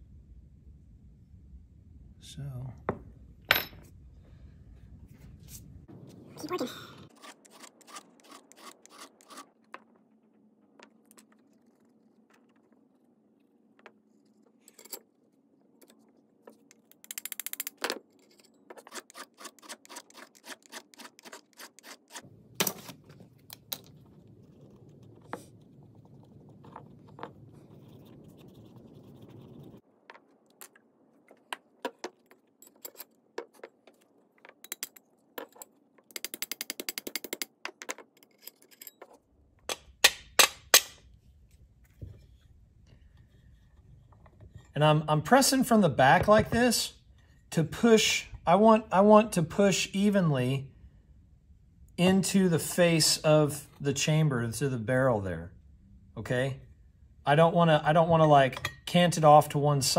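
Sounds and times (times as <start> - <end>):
file scraping steel: 7.1 - 9.6, 18.2 - 22.2
low hum: 22.3 - 29.8.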